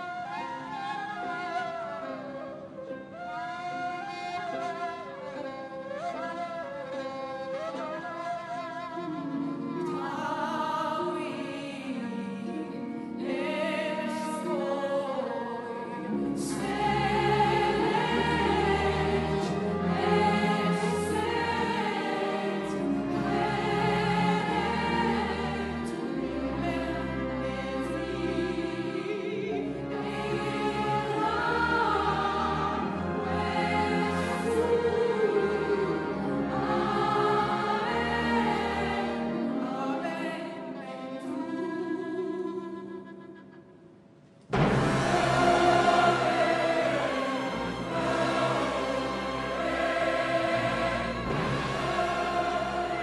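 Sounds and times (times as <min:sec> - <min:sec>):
orchestral music: 0:00.0 - 0:42.1, 0:44.5 - 0:53.0
choir singing operatically: 0:09.7 - 0:41.6, 0:44.5 - 0:53.0.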